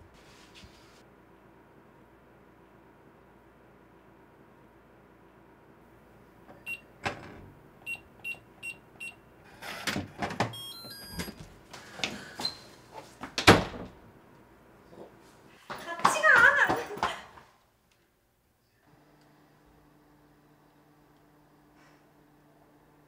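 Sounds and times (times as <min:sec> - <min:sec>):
keypad beeps: 0:10.5 - 0:11.4.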